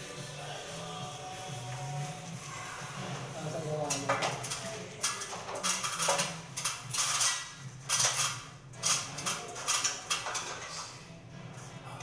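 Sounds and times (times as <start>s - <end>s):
metallic clicks and knocks: 3.9s - 10.8s.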